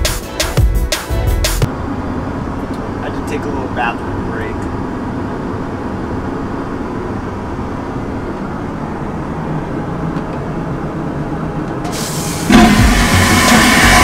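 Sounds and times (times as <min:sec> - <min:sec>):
airliner cabin drone: 0:01.6 - 0:14.0
vacuum toilet flush: 0:11.8 - 0:14.0.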